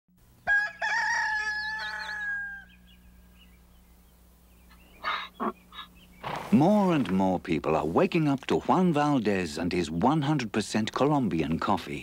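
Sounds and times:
rooster crowing: 0.4 - 3.0.

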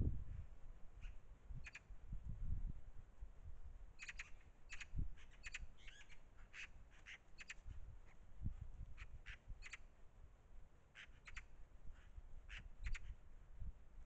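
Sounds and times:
magpie harsh calls: 4.0 - 7.6, 11.0 - 11.5.

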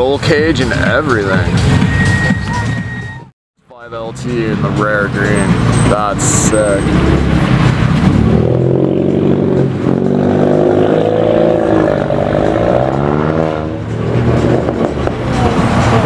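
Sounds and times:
sports car engine pulling away: 4.6 - 16.0.

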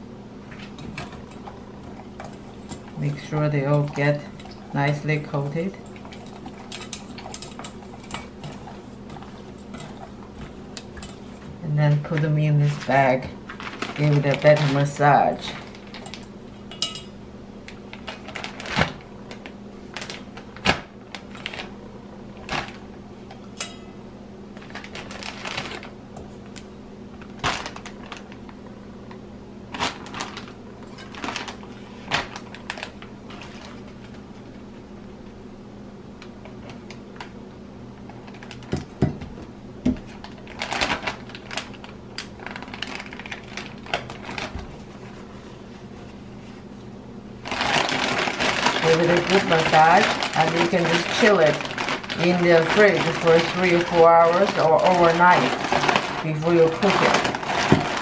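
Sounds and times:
faint steady hum: 0.0 - 58.0
plastic bag crinkling: 0.9 - 16.4, 17.7 - 21.8, 22.4 - 22.9, 24.6 - 34.6, 38.0 - 38.8, 40.0 - 45.2, 47.4 - 58.0.

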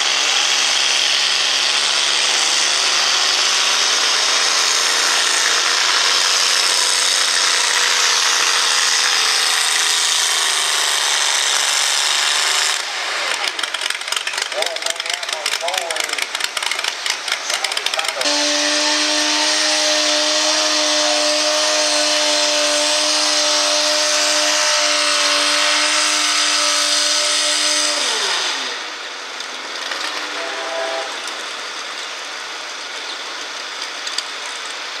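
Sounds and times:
tractor engine at full throttle: 0.0 - 35.0.

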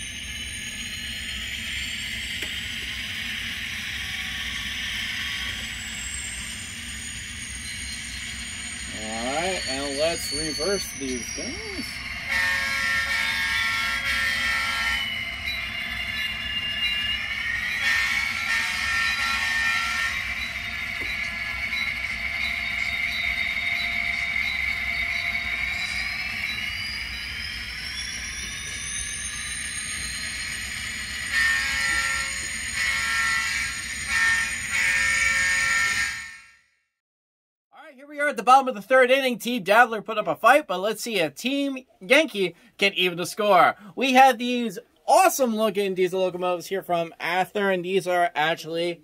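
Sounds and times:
model train diesel engine sound: 0.0 - 36.3, 37.8 - 49.0
train horn blasts: 12.2 - 15.3, 17.2 - 21.2, 31.2 - 36.7.

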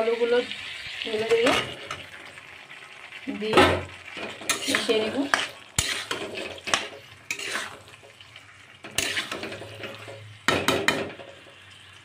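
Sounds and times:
metal spatula scraping a pan: 4.0 - 11.6.

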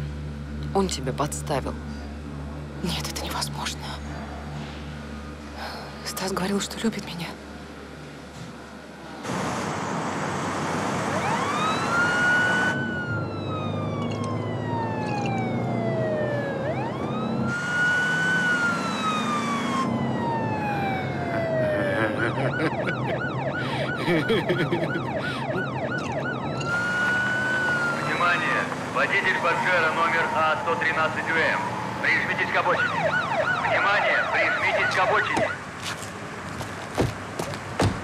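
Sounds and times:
car rumbling: 0.0 - 38.0
police siren wailing: 5.0 - 6.8, 10.6 - 35.6.

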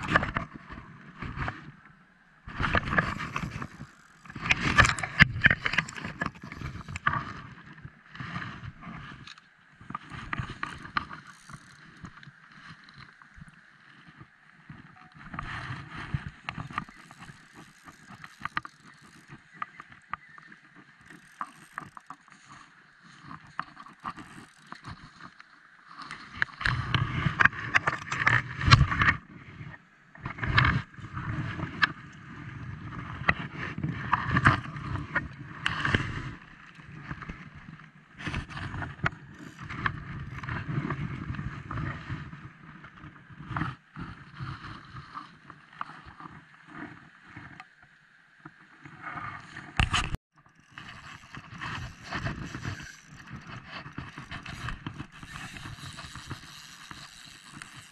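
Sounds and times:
water rushing and lapping: 2.4 - 29.4, 30.3 - 57.9
fishing reel clicking: 3.2 - 5.2, 10.6 - 12.2, 16.6 - 19.7, 21.0 - 22.5, 23.5 - 24.9, 50.4 - 57.9.

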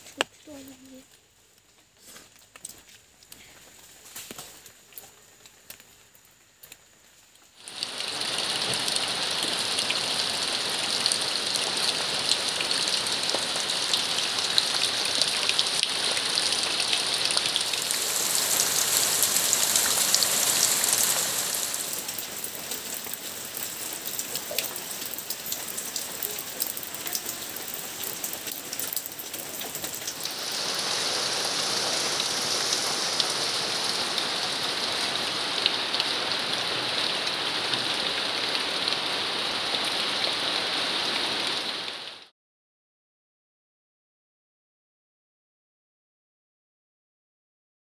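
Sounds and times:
rain splashing into puddles: 0.1 - 42.3.

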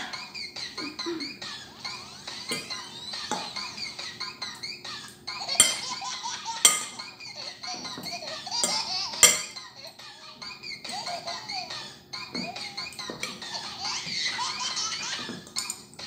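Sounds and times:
fork clinking against dishes: 2.5 - 3.6, 5.5 - 6.0, 6.6 - 7.1, 8.0 - 9.6, 15.3 - 16.0.

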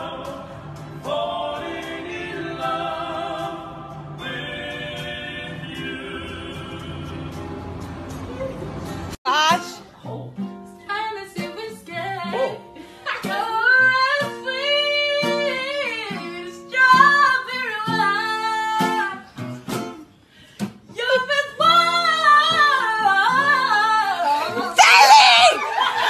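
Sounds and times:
woman singing: 9.3 - 19.4, 20.9 - 26.0.

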